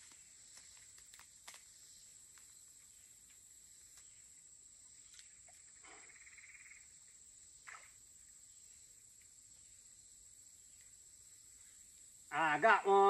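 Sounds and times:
insects droning: 0.0 - 13.0.

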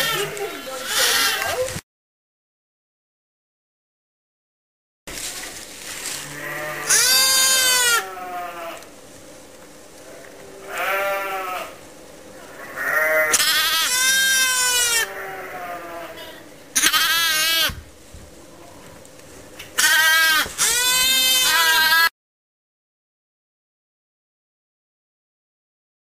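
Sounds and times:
lambs bleating: 0.0 - 1.6, 6.2 - 8.9, 10.5 - 11.8, 12.5 - 17.8, 19.8 - 22.1.

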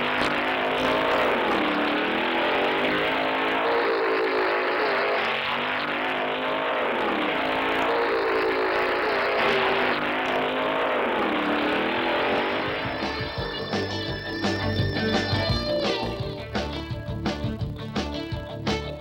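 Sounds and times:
race car engine revving: 0.0 - 13.4.

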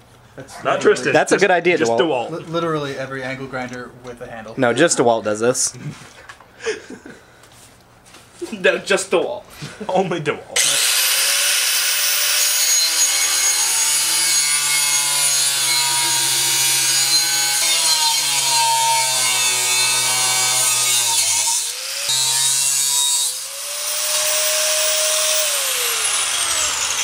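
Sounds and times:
angle grinder cutting steel pipe: 10.6 - 27.0.

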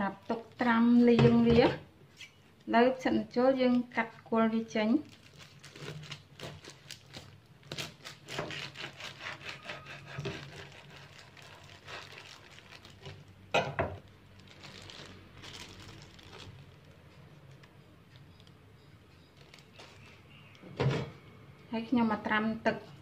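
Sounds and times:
crinkling plastic: 4.7 - 20.6.

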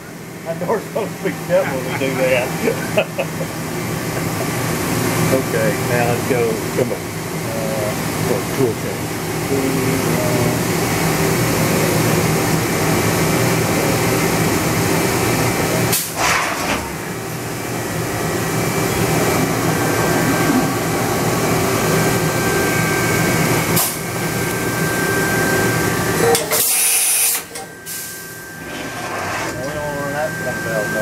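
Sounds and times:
machine motors humming: 0.1 - 31.0.

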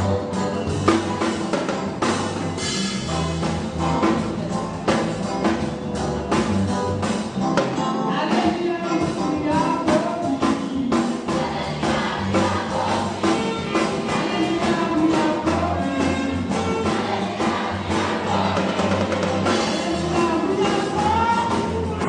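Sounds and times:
band playing: 0.0 - 22.0
drums keeping a steady beat: 0.0 - 22.0
choir singing: 10.9 - 21.6.

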